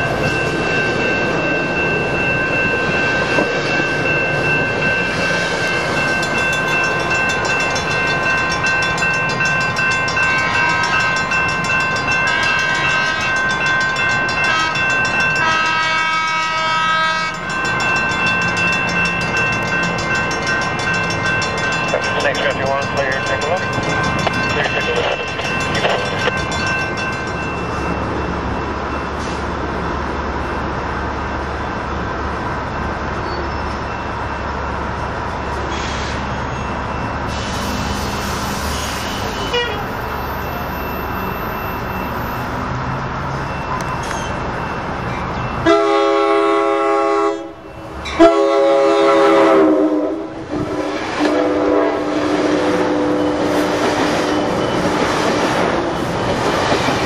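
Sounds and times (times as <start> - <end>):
train cars rolling by: 0.0 - 57.0
train rumble: 0.0 - 57.0
train horn blasts: 12.2 - 13.4, 14.4 - 17.4, 39.3 - 39.9, 45.6 - 47.6, 48.2 - 54.3.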